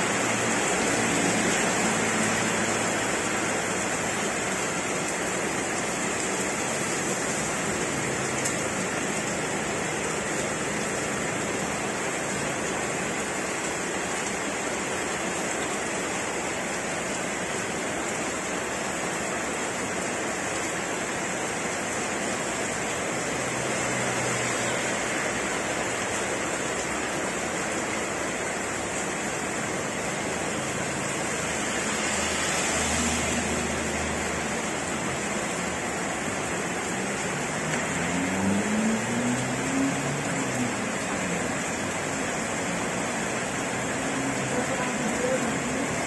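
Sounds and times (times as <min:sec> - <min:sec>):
heavy rain on paved road: 0:00.0 - 0:46.0
vehicle engine passing: 0:37.4 - 0:40.9.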